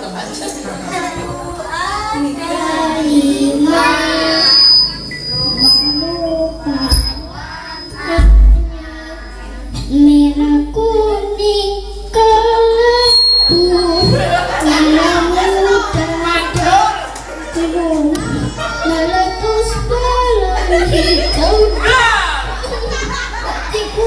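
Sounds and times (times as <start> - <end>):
girl singing into a microphone: 0.9 - 16.7, 17.4 - 24.0
low thumps: 1.1 - 16.9.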